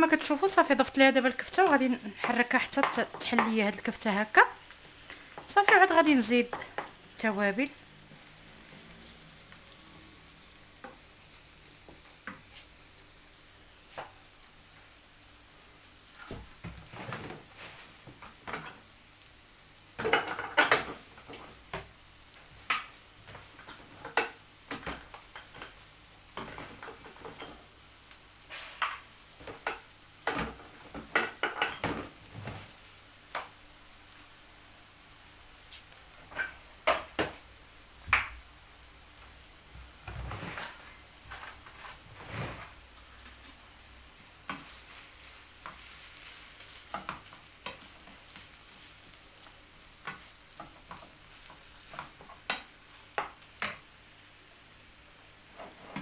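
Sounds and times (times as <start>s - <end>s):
meat sizzling in a frying pan: 0.0s - 42.1s, 42.7s - 56.0s
wooden spoon scraping a pan: 40.0s - 43.6s, 44.4s - 53.4s, 55.4s - 56.0s.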